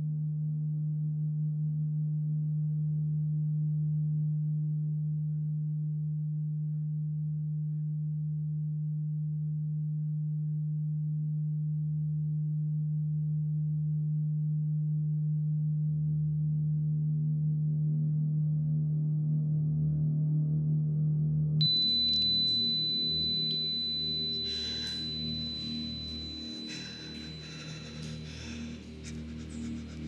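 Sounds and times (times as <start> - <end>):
higher tones: 21.6 - 28.8
low drone: 21.6 - 30.0.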